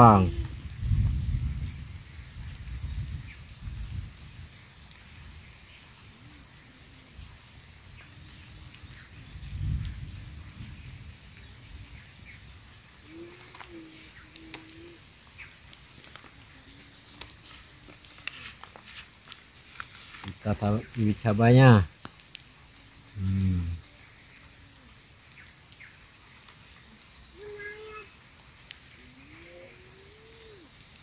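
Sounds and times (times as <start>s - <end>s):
small birds chirping: 0.0s - 31.0s
faint low call: 23.2s - 23.8s.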